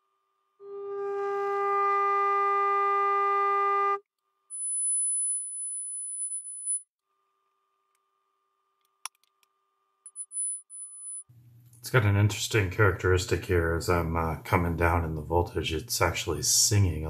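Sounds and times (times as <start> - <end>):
distorted sine test tone: 4.4 - 11.3
thin high-pitched tone: 4.5 - 6.9, 10.1 - 11.3.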